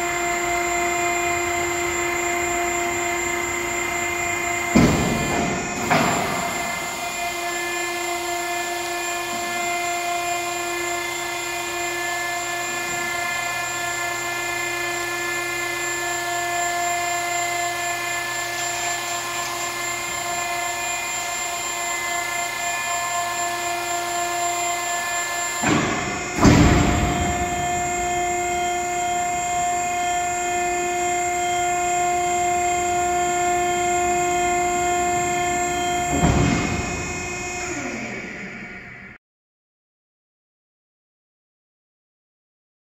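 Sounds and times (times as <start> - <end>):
machine drive whining: 0.0 - 39.2
loud machine clunk: 4.5 - 7.0, 25.4 - 30.0, 35.4 - 38.1.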